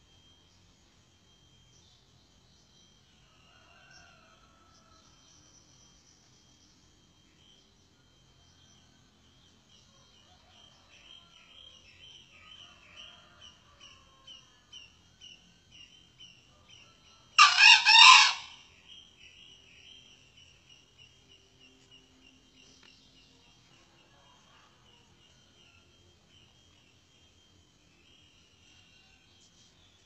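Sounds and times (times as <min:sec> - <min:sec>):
rooster crowing: 0:03.3 - 0:05.0, 0:16.9 - 0:18.7.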